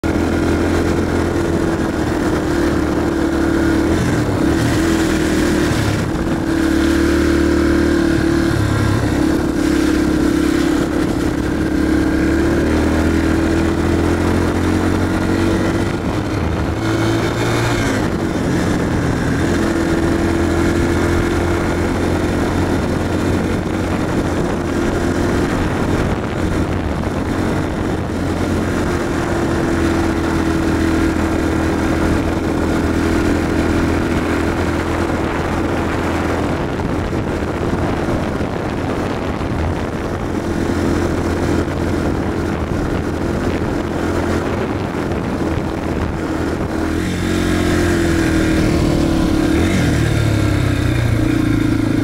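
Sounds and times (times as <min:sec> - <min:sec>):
dirt bike engine revving: 0:00.0 - 0:52.0.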